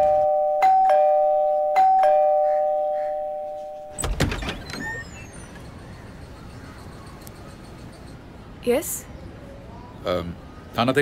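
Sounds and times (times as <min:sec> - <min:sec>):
two-tone doorbell chime: 0:00.0 - 0:04.0
wooden door unlatched and opened: 0:03.9 - 0:05.2.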